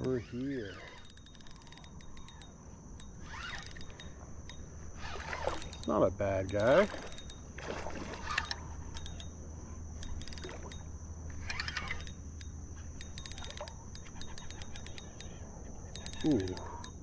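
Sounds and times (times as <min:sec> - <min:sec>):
light clicks and rattles: 0:00.0 - 0:04.7, 0:05.4 - 0:07.5, 0:08.2 - 0:17.0
creek water: 0:03.2 - 0:12.1.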